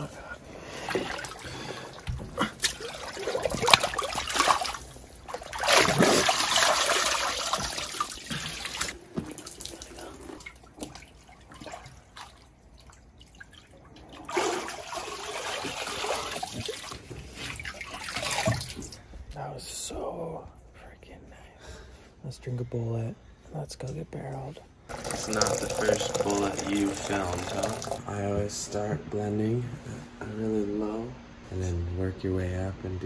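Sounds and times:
water sloshing and splashing in tub: 0:00.0 - 0:19.2, 0:24.9 - 0:28.3.

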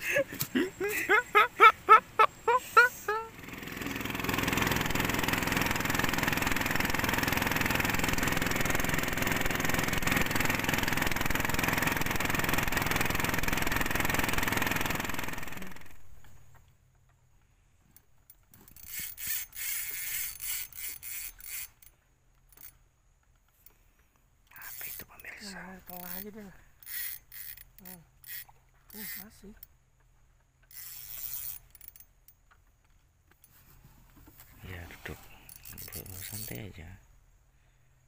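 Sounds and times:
boat engine running: 0:03.3 - 0:16.1.

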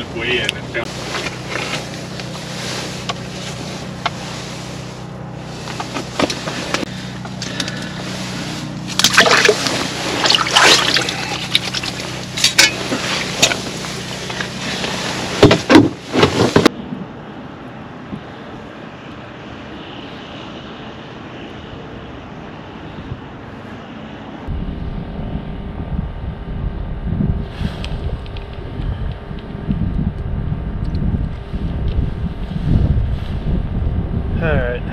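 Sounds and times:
low steady hum: 0:00.0 - 0:34.9
handling and rustling: 0:00.9 - 0:16.7
water splashing and sloshing: 0:00.9 - 0:16.7
wind hiss: 0:21.5 - 0:34.9.

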